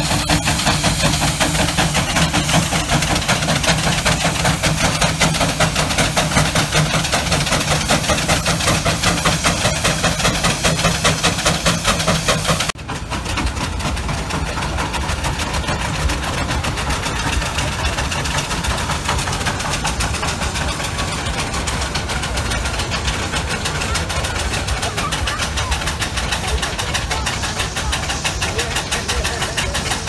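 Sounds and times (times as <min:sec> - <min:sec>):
steam engines chuffing: 0:00.0 - 0:30.0.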